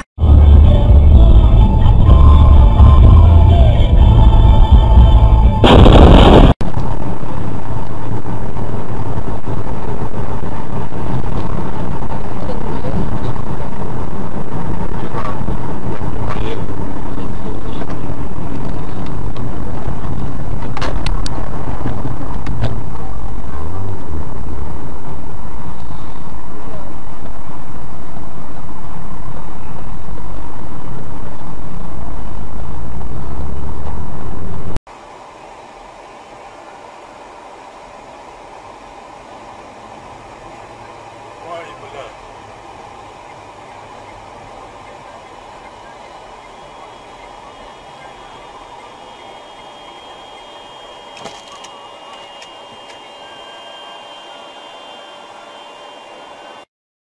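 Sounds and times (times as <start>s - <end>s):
car road and engine noise: 0.0s - 56.6s
loud burst of noise: 0.0s - 56.7s
music: 0.2s - 6.5s.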